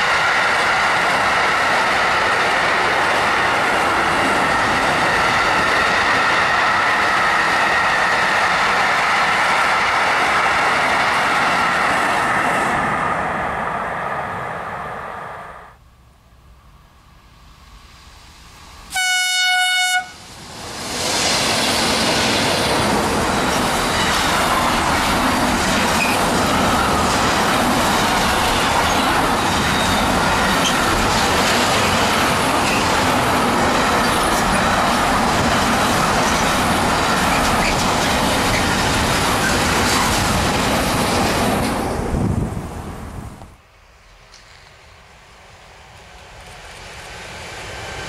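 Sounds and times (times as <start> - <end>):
freight train wheels on rails: 0.0 - 15.4, 16.4 - 48.0
train horn: 18.9 - 20.2.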